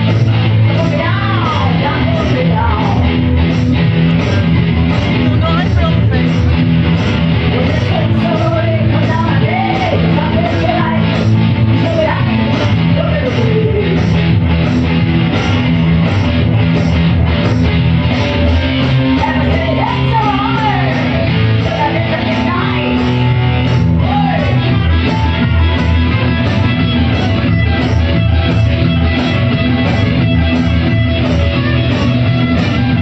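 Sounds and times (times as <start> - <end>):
electric guitars playing: 0.0 - 33.0
stomp-box beat: 0.0 - 33.0
woman singing: 0.6 - 3.1, 7.5 - 14.2, 19.1 - 23.3.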